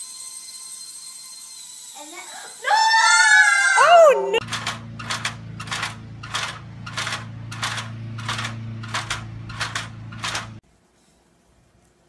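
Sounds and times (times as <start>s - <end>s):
stepladder clacking and scraping on asphalt: 4.4s - 10.6s
steady low hum: 4.4s - 11.8s.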